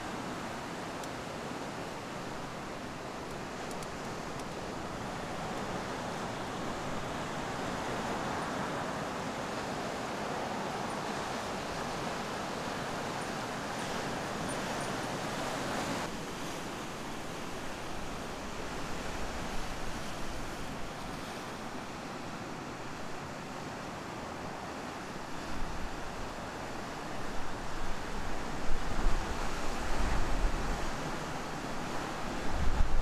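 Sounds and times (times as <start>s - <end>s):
wind on microphone: 27.4s - 33.0s.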